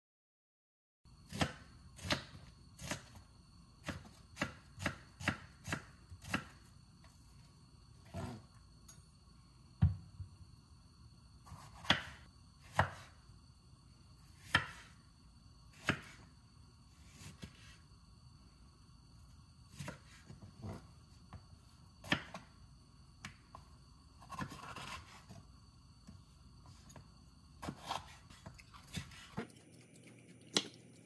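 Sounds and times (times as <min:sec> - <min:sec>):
knife chopping on cutting board: 0:03.8 - 0:06.5, 0:11.5 - 0:13.1, 0:14.4 - 0:14.9, 0:15.8 - 0:16.2, 0:27.6 - 0:29.5.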